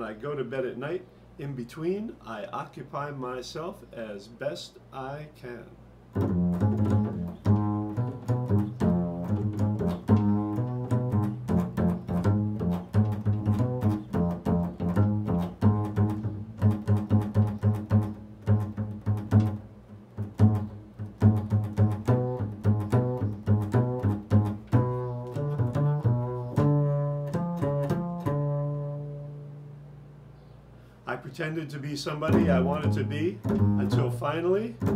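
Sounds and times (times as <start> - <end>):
double bass plucked notes: 6.1 - 30.4, 32.1 - 34.9.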